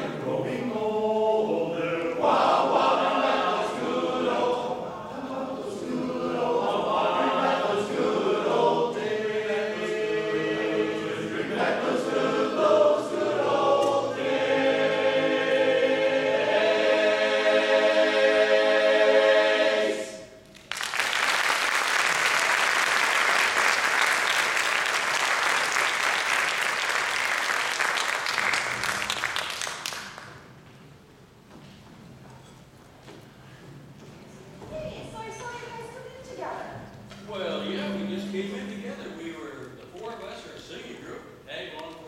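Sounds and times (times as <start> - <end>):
men's chorus singing: 0.0 - 20.3
audience applause: 20.6 - 30.4.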